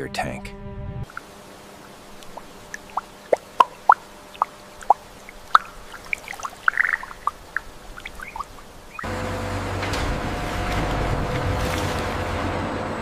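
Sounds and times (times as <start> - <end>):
faint steady hiss: 1.1 - 9.0
water drops plopping: 1.1 - 9.1.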